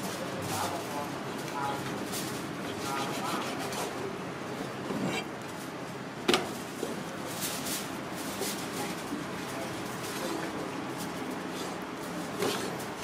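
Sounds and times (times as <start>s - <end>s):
knife on plastic cutting board: 4.9s - 5.3s, 12.4s - 12.8s.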